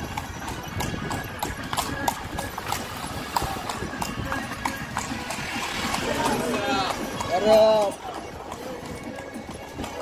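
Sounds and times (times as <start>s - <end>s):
horse hooves clip-clopping on pavement: 0.0s - 10.0s.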